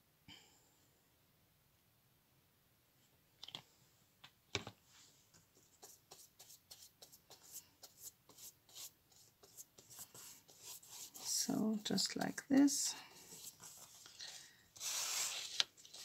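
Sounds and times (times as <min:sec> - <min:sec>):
paintbrush brushing on cardboard: 0:05.0 - 0:16.0.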